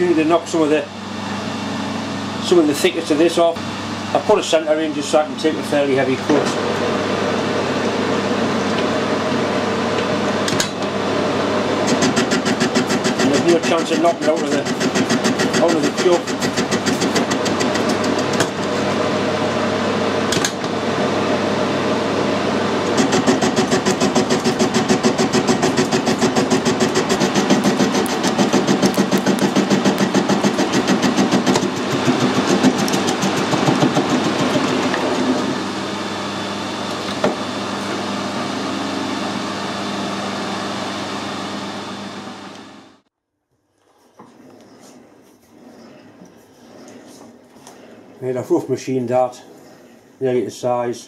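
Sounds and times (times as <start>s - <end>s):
metal lathe cutting: 11.8s - 19.0s, 22.6s - 39.4s.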